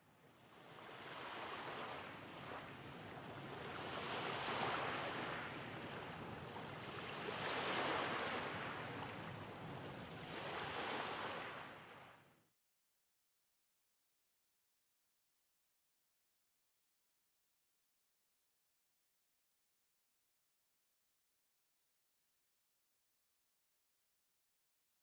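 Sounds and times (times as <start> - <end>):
waves washing in: 0.8 - 12.0.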